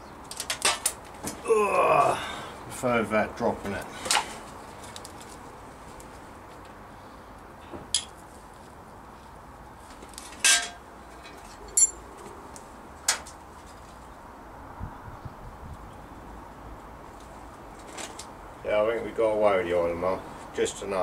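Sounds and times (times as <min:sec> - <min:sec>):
metallic clinks of spanner: 0:10.5 - 0:12.0.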